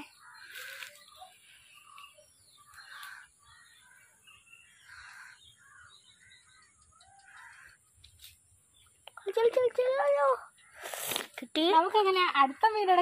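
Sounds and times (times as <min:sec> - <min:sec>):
crows cawing: 0:00.1 - 0:01.0, 0:02.6 - 0:04.1, 0:04.7 - 0:07.9.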